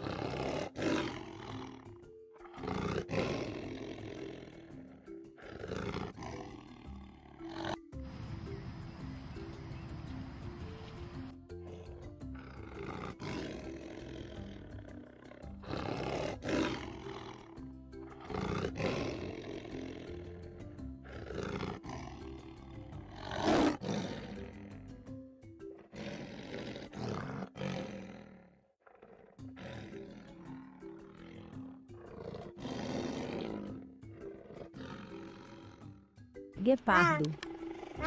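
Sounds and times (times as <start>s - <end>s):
lion roaring: 0.0s - 7.9s, 11.6s - 25.2s, 25.8s - 36.1s, 37.3s - 38.0s
music with held notes: 1.5s - 16.2s.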